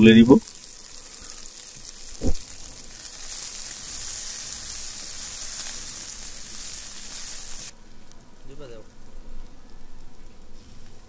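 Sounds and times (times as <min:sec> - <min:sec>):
hot water sizzling in pot: 0:00.0 - 0:07.8
low thud: 0:02.2 - 0:02.5.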